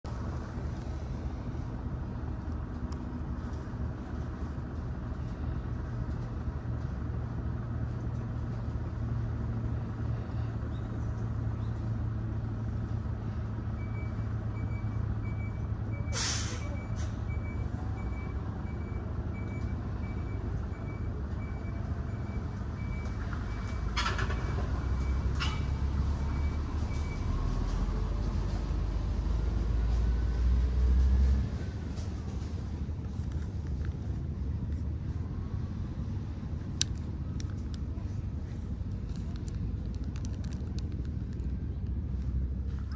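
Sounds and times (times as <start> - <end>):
large vehicle engine idling: 0.1 - 42.9
sharp air hiss: 16.2 - 16.6.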